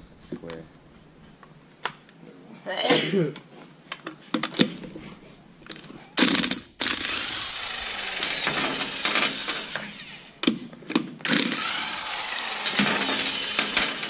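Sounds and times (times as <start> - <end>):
impact wrench whirring: 6.2 - 14.0.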